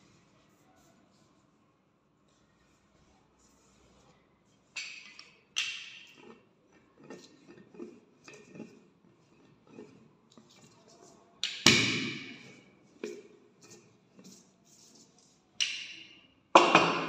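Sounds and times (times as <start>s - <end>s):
rolling pin rolling over clay: 5.8s - 15.5s
rolling pin knocking on table: 16.6s - 17.0s.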